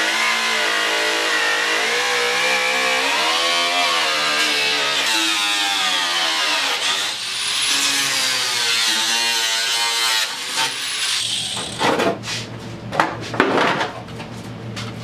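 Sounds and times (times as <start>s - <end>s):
angle grinder cutting plastic: 0.0s - 11.9s.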